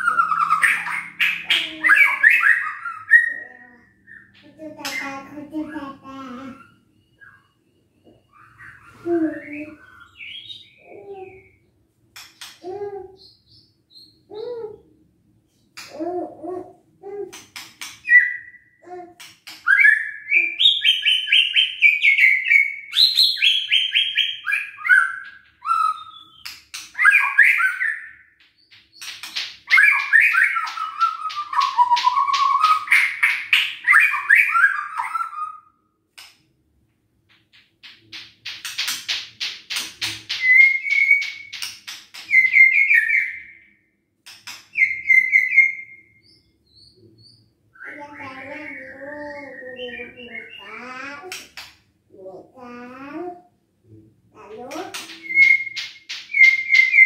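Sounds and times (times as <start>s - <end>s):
bird whistling song: 0.0s - 4.4s, 6.6s - 11.6s, 18.0s - 18.8s, 19.6s - 28.4s, 29.7s - 35.8s, 40.3s - 43.7s, 44.7s - 50.8s, 54.9s - 57.0s.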